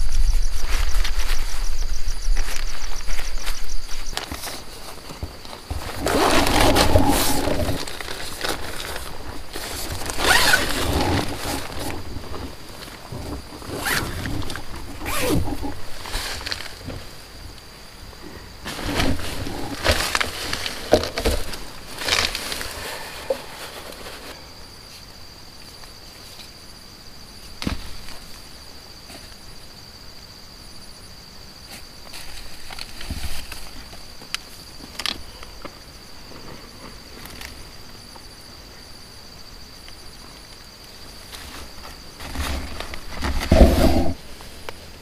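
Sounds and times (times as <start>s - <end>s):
night insects chirring: 0.0s - 45.0s
rustling and handling noises: 0.5s - 17.3s, 18.6s - 24.4s, 31.7s - 37.6s, 41.1s - 45.0s.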